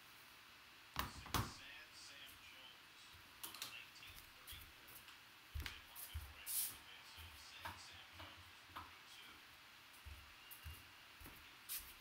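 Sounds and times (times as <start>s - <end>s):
footsteps on hardwood floor: 4.1s - 9.0s, 9.9s - 12.0s.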